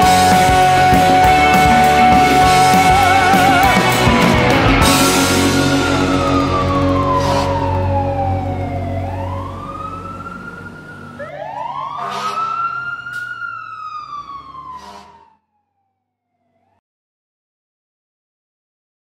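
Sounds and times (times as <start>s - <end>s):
rock chord ringing: 0.0s - 10.2s
wailing siren: 0.0s - 16.8s.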